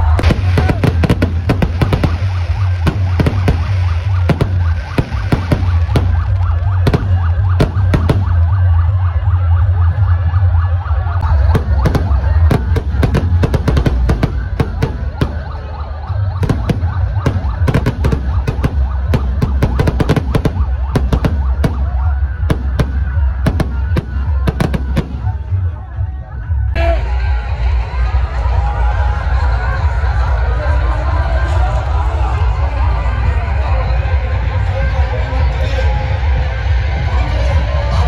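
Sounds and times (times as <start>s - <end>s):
fireworks bangs and crackles: 0.0s - 25.8s
wavering siren-like whistle: 0.0s - 30.3s.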